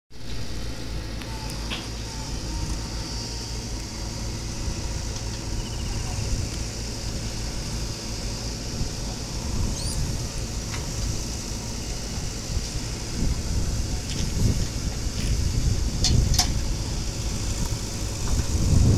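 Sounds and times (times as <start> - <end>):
diesel engine running: 0.1 - 18.9.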